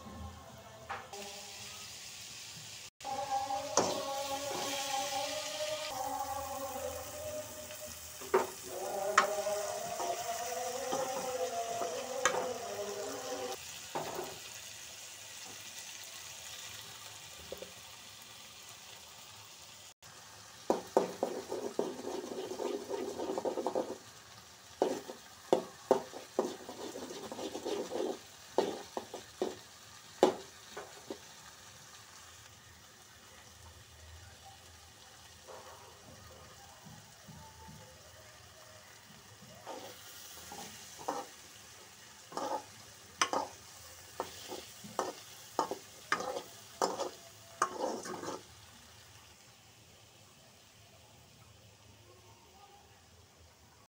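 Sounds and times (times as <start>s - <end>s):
vegetables sizzling in a frying pan: 1.1s - 53.9s
spatula scraping a pan: 3.1s - 5.1s, 7.6s - 14.4s, 20.7s - 24.2s, 24.8s - 29.6s, 39.6s - 41.6s, 42.2s - 48.6s.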